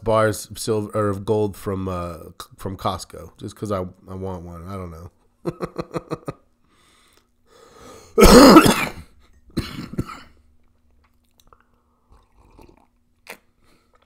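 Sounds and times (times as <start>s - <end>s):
person coughing: 8.2s - 10.4s.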